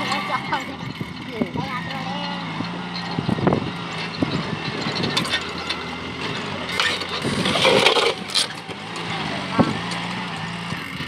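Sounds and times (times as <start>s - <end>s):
tractor diesel engine running: 0.0s - 11.0s
plough knocks and clatter: 3.0s - 10.4s.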